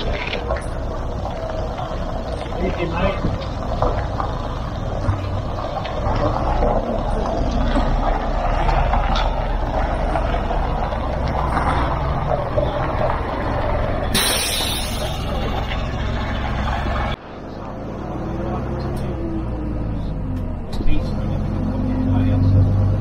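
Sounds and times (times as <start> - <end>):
bus engine running: 0.0 - 23.0
compressed air hiss: 14.2 - 15.0.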